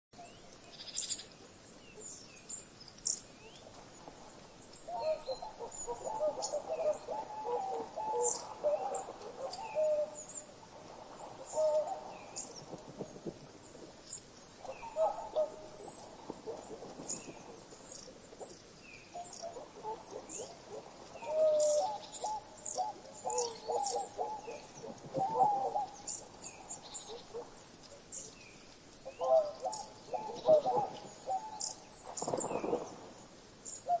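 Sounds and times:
lower mellow bird calls: 0.2s - 34.0s.

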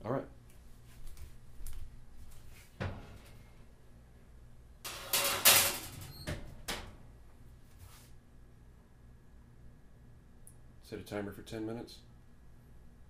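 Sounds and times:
oven rack scraping on rails: 4.9s - 6.1s.

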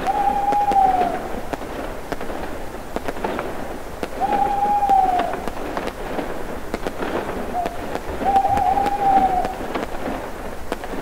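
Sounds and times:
firework whistle: 0.0s - 1.4s, 4.1s - 5.6s, 7.4s - 9.9s
fireworks crackling and popping: 0.0s - 11.0s.

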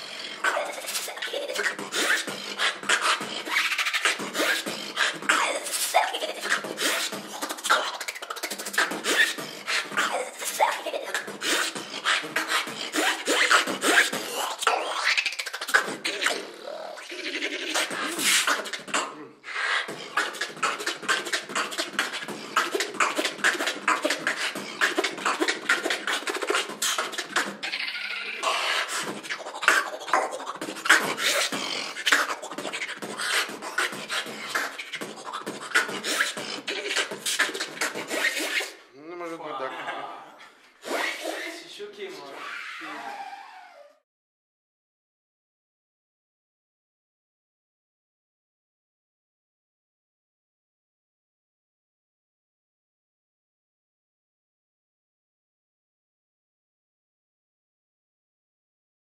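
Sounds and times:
beatboxing: 0.0s - 39.5s, 40.8s - 41.7s.

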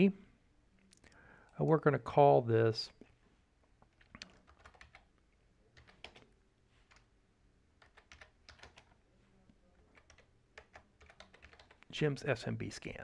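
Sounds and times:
typing on computer keyboard: 4.0s - 5.1s, 5.8s - 6.3s, 7.8s - 9.0s, 9.9s - 11.9s.

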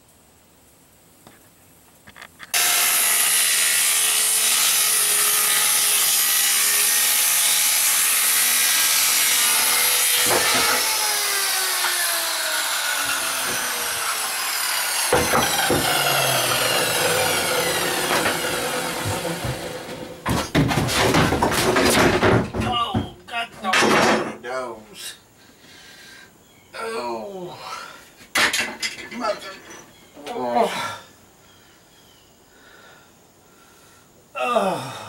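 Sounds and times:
circular saw cutting plywood: 2.5s - 21.2s.

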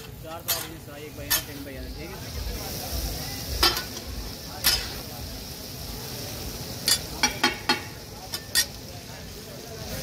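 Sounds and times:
metal spatulas clanking on griddle: 0.0s - 1.8s, 3.6s - 5.1s, 6.7s - 8.9s
meat sizzling on griddle: 0.0s - 10.0s.

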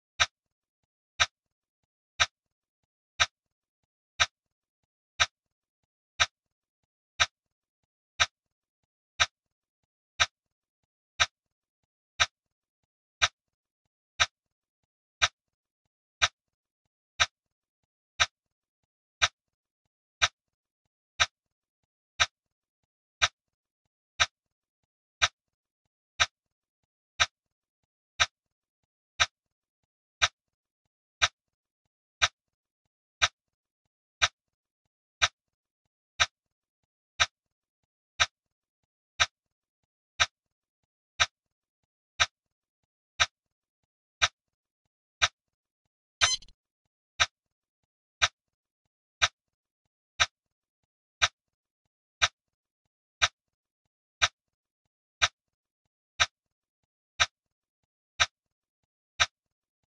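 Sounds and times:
timer ticking clicks: 46.2s - 46.5s.

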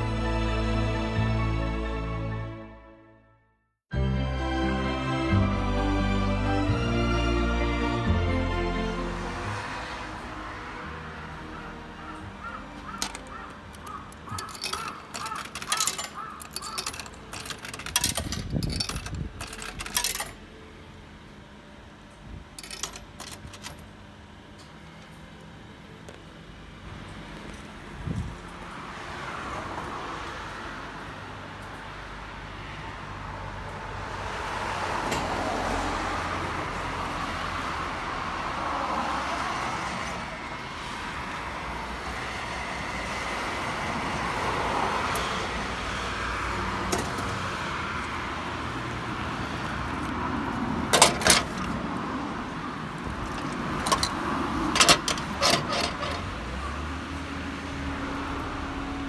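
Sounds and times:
coins clinking through vending machine: 12.9s - 20.5s, 22.6s - 23.9s, 50.9s - 51.7s, 53.2s - 56.3s.

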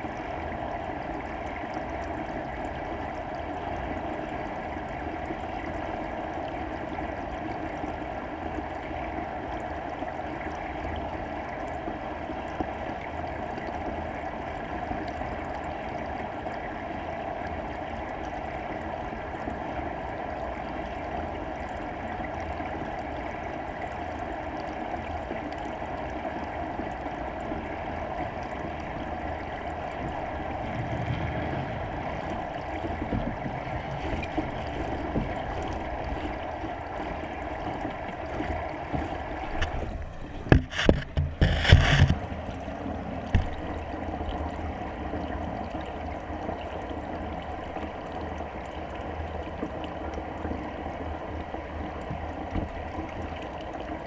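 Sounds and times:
muffled underwater rushing: 0.0s - 54.0s
low rumble: 30.1s - 38.3s.

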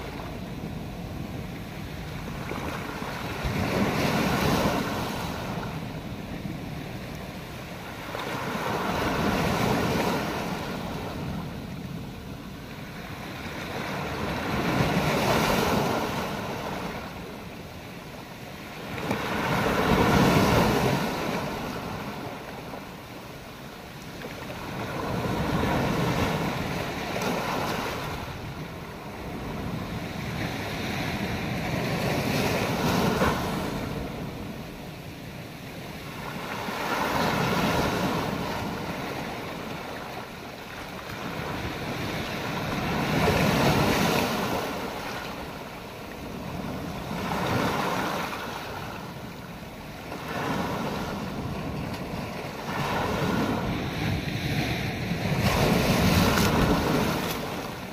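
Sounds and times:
surf washing over beach rocks: 35.9s - 57.9s.

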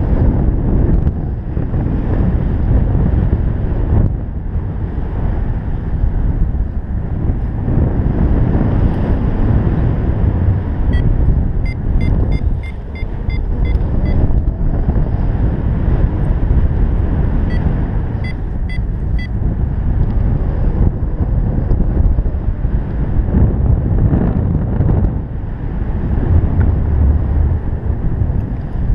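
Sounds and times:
wind buffeting microphone: 0.0s - 28.9s
short high beeps: 10.9s - 14.2s.

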